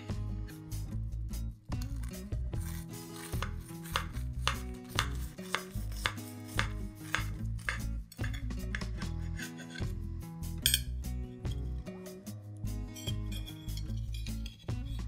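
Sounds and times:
knife crunching through crisp topping: 0:01.8 - 0:07.3.

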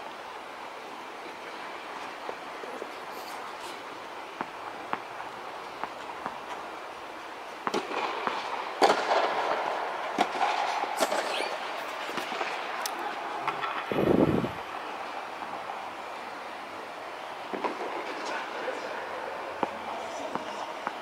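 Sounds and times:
steady hiss: 0:00.0 - 0:21.0
tennis balls struck and bouncing: 0:04.4 - 0:06.6, 0:07.6 - 0:11.5, 0:19.6 - 0:21.0.

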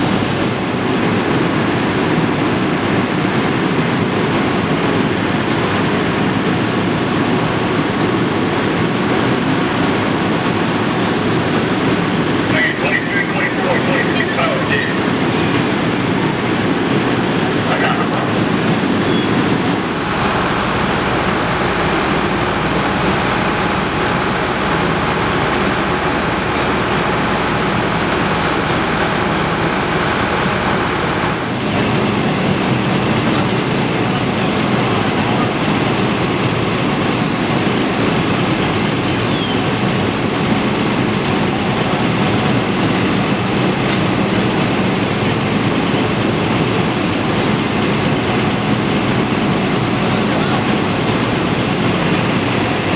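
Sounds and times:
fire engine pumps droning: 0:00.0 - 0:52.9.

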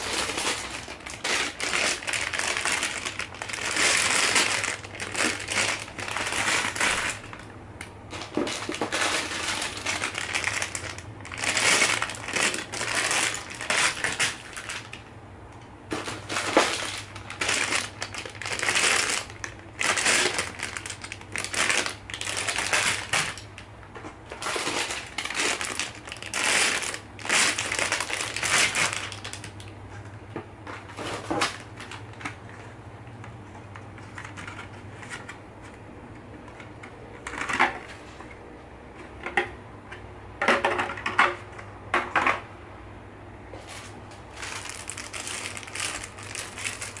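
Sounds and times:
plastic bricks rattling in bags: 0:00.0 - 0:07.4, 0:08.1 - 0:15.0, 0:15.9 - 0:23.4, 0:24.3 - 0:29.6, 0:44.4 - 0:47.0
plastic bag crinkling: 0:00.0 - 0:15.1, 0:15.9 - 0:23.7, 0:24.3 - 0:29.7, 0:43.7 - 0:47.0.

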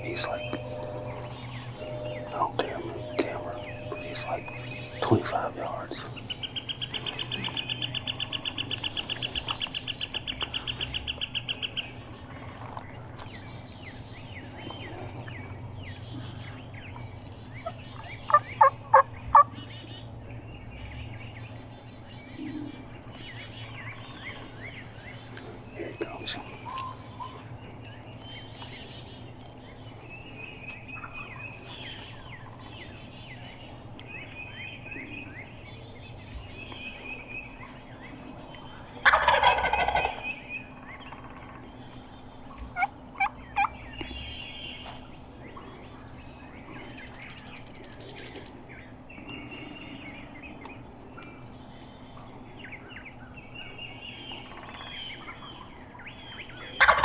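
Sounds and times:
short sharp notes: 0:00.0 - 0:06.3
songbirds chirping faintly: 0:00.0 - 0:57.0
turkey gobbling: 0:39.0 - 0:40.3, 0:56.8 - 0:57.0.

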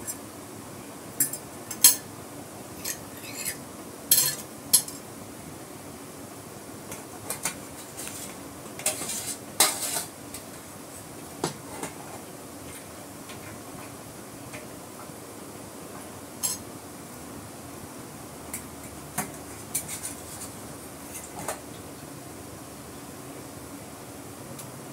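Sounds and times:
metal utensil clinking on pot: 0:02.8 - 0:05.0, 0:16.4 - 0:16.6.

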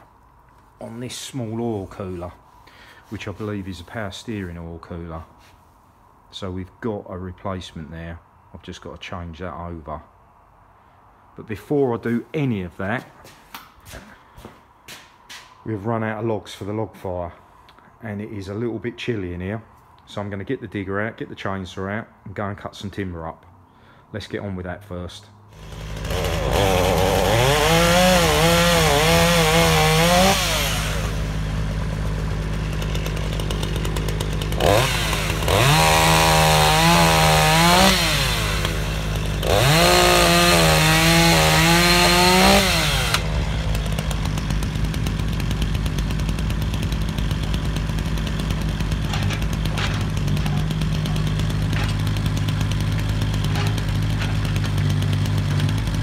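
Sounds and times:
chainsaw cutting logs: 0:25.5 - 0:56.0
digger engine running: 0:25.6 - 0:56.0.

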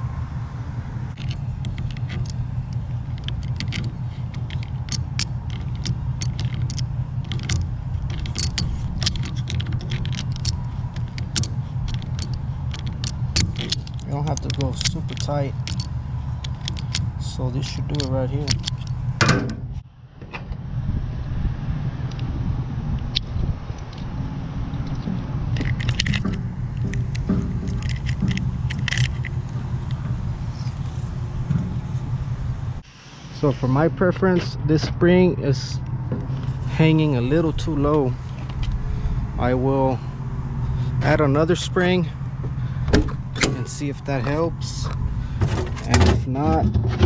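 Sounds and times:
engine idling: 0:00.0 - 0:47.0
steady low rumble: 0:00.0 - 0:47.0
locking pliers clicking: 0:01.2 - 0:17.1, 0:17.8 - 0:19.5, 0:24.8 - 0:30.0
metal hook and spring jangling: 0:01.2 - 0:19.7, 0:24.7 - 0:30.8, 0:42.8 - 0:46.5.

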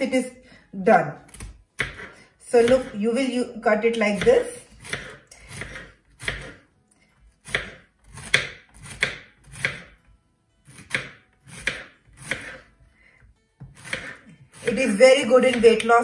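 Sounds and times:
knife slicing courgette: 0:01.2 - 0:03.2, 0:03.9 - 0:06.6, 0:07.4 - 0:10.0, 0:10.7 - 0:12.7, 0:13.6 - 0:16.0.

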